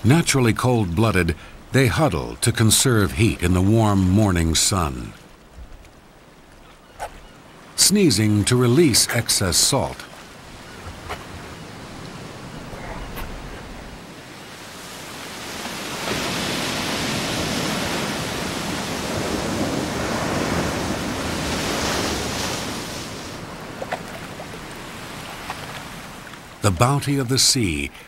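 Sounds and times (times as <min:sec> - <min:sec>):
surf breaking on rocky shore: 0:07.9 - 0:27.2.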